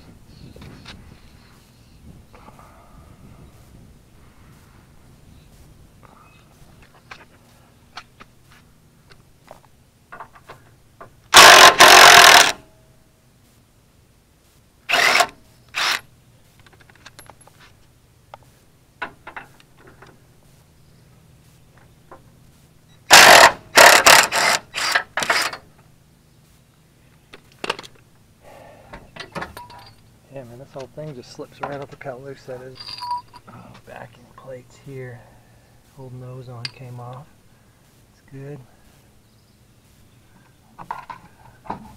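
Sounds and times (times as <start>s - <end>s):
impact wrench hammering: 11.3s - 12.6s, 23.1s - 25.6s.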